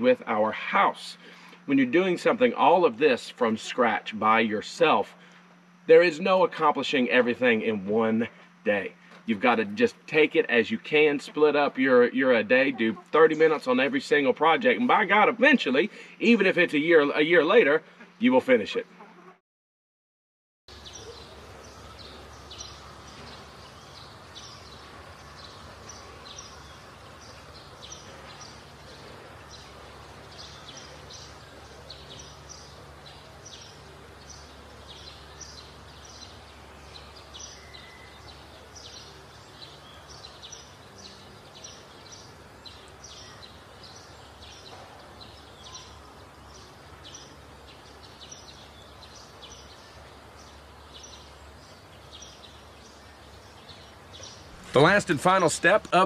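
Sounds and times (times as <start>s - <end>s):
steady low hum: 0.0s - 19.0s, 20.7s - 56.0s
small birds chirping: 20.7s - 56.0s.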